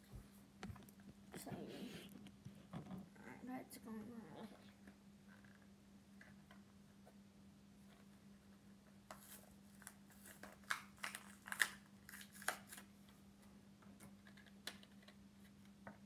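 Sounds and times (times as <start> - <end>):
faint steady hum: 0.0 - 16.0
packaging crinkling and tearing: 9.1 - 12.9.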